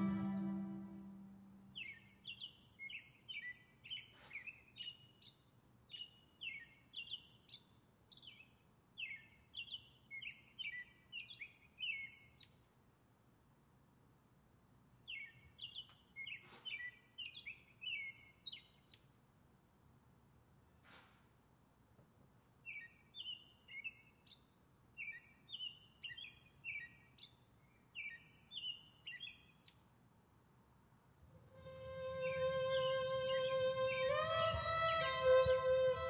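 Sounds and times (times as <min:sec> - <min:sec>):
music: 0:00.0 - 0:01.4, 0:31.5 - 0:36.0
songbird chirping: 0:00.0 - 0:12.8, 0:15.0 - 0:19.3, 0:22.5 - 0:30.1, 0:31.4 - 0:36.0.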